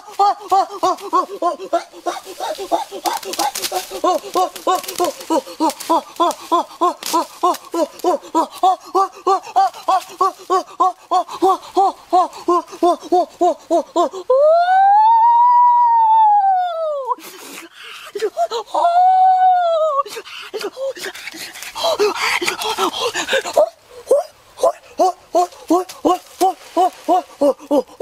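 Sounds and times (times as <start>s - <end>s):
man giving laughing cries: 0.0s - 14.7s, 22.0s - 28.0s
man wailing: 0.0s - 17.2s, 23.6s - 28.0s.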